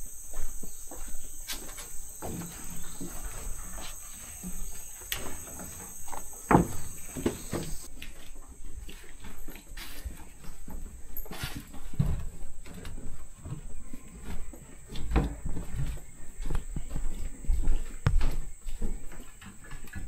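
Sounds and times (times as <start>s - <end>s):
footsteps on wooden stairs: 0.0s - 7.9s, 14.9s - 19.9s
high insect drone: 0.0s - 7.9s.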